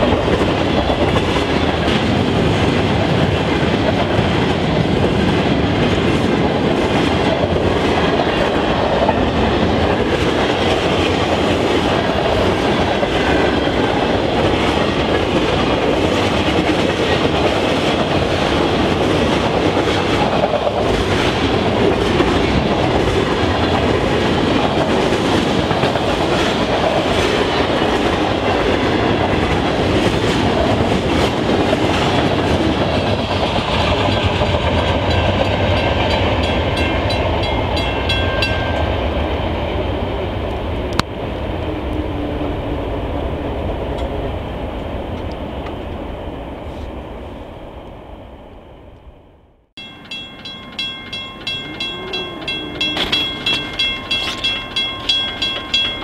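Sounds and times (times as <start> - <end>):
train wheels clacking on rail joints: 0.0 - 38.9, 49.8 - 56.0
freight train rumbling past: 0.0 - 56.0
crossing warning bell ringing: 12.7 - 14.2, 35.0 - 39.4, 49.8 - 56.0.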